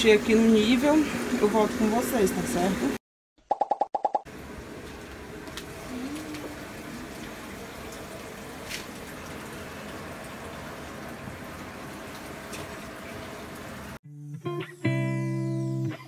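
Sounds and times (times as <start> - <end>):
water filling washing machine tub: 0.0 - 3.0, 4.3 - 14.0.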